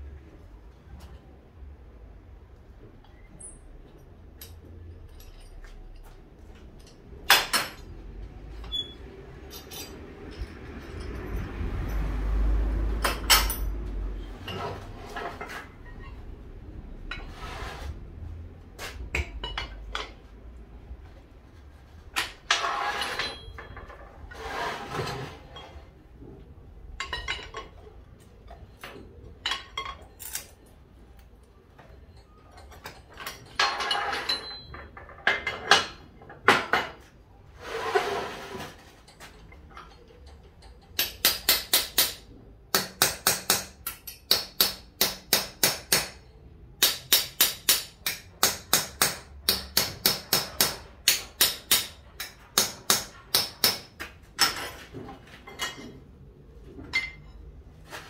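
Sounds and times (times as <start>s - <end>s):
metal tool clanks and scrapes: 3.0s - 6.2s, 6.8s - 12.2s, 13.0s - 16.4s, 17.0s - 18.0s, 18.8s - 20.4s, 21.6s - 26.0s, 26.9s - 30.8s, 31.8s - 41.0s, 50.4s - 58.0s.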